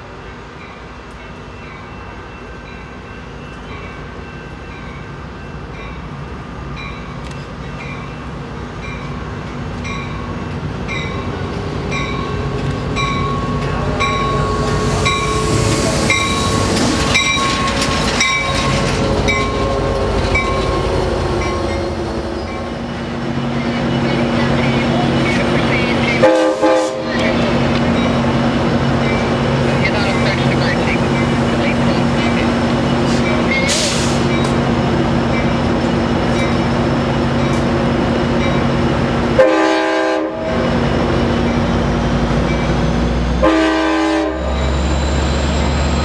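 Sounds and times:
diesel passenger train passing: 0.0s - 46.0s.

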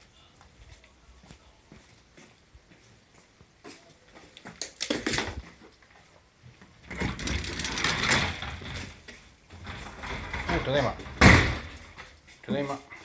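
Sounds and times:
door clicking and rattling: 6.8s - 12.2s
sliding door rolling open: 6.8s - 12.2s.

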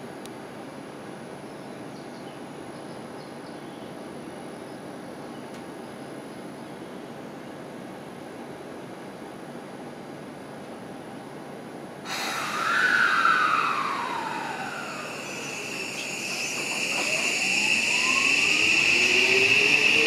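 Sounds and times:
electric train hiss: 12.1s - 20.0s
electric train inverter whine: 12.1s - 20.0s
steady high whine: 12.1s - 20.0s.

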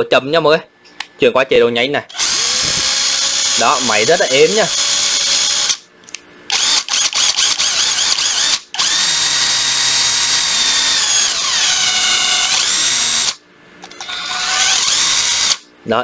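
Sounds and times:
cordless impact driver motor running: 2.2s - 5.8s, 6.5s - 15.6s.

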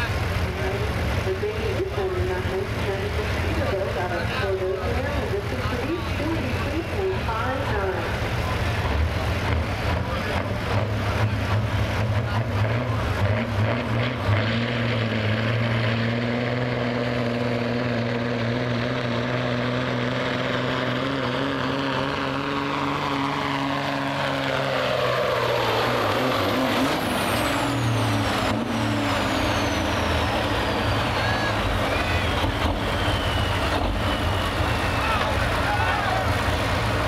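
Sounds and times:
diesel truck engine under load: 0.0s - 37.0s
high whistle: 29.4s - 35.4s.

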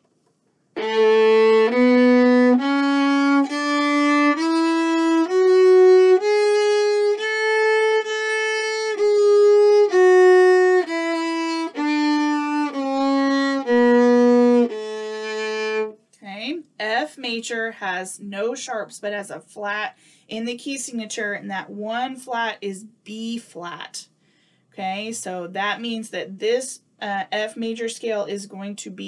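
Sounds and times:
viola playing a scale: 0.8s - 16.0s.

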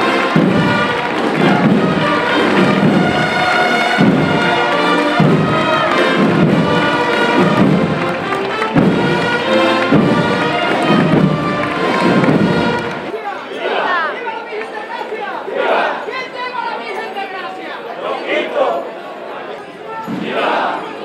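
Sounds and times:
band playing slow march: 0.0s - 13.1s
heavy drum beat: 0.0s - 13.1s.

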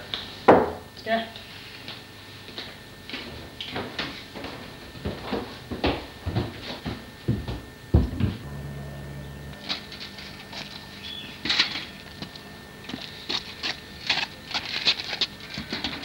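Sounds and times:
low hum: 8.0s - 15.2s
footsteps crunching on path: 9.7s - 16.0s.

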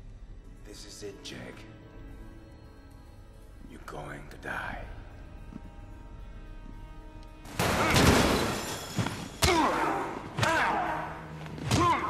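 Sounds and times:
men grunting and shouting: 9.4s - 12.0s.

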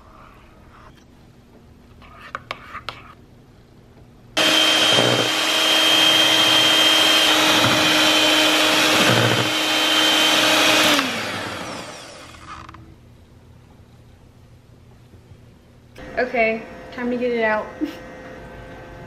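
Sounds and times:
electric hand mixer whine: 4.4s - 12.7s.

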